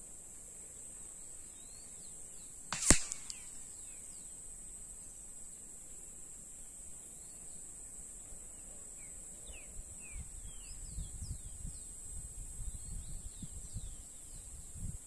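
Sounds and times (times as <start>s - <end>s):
insect drone: 0.0s - 14.8s
wind buffeting microphone: 10.1s - 15.0s.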